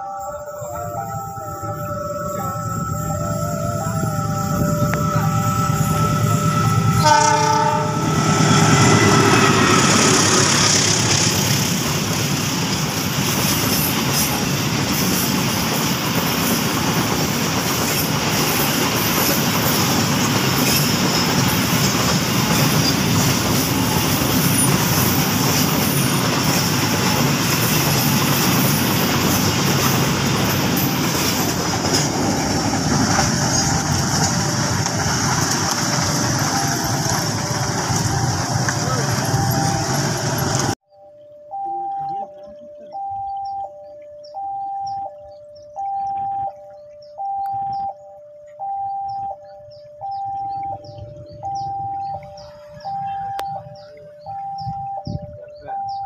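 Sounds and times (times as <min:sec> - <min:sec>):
locomotive horn: 0:00.0 - 0:12.5, 0:19.0 - 0:40.8
train wheels on rails: 0:01.4 - 0:40.8.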